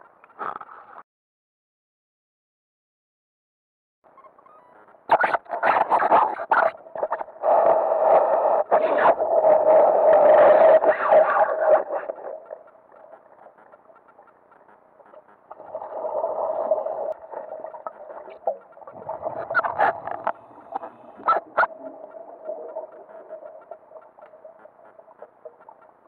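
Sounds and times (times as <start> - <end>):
muffled underwater hum: 6.8 - 26.0
underwater rushing burst: 15.6 - 23.7.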